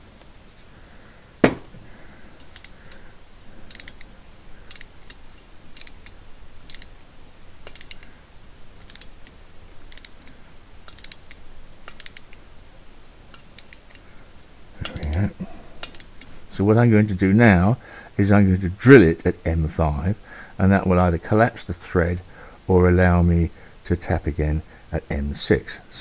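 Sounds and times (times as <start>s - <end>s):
sharp knock: 1.4s - 1.8s.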